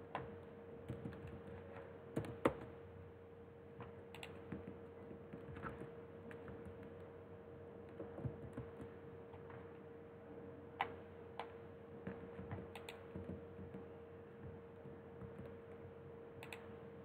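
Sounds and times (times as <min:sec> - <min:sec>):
faint steady hum: 0:00.0 - 0:17.0
keyboard and mouse clicks: 0:04.1 - 0:04.4, 0:12.7 - 0:13.3, 0:16.4 - 0:16.7.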